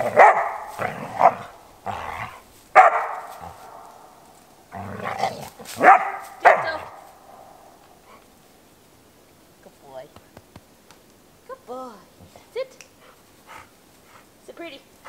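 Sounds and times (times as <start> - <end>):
dog barking and growling: 0.0 - 8.2.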